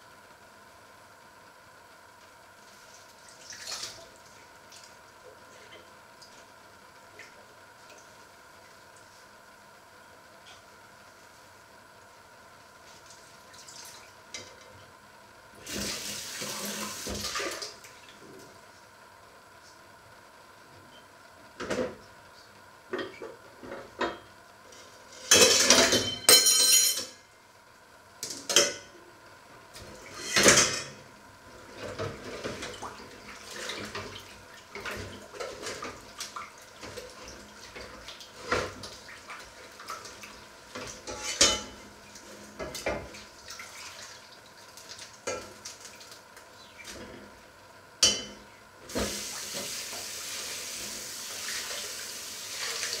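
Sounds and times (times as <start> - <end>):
dishes clattering in metal sink: 25.2 - 27.2, 28.2 - 28.9, 29.9 - 31.0, 36.8 - 39.0, 40.7 - 41.9, 48.0 - 50.0
tap water running into sink: 48.9 - 53.0.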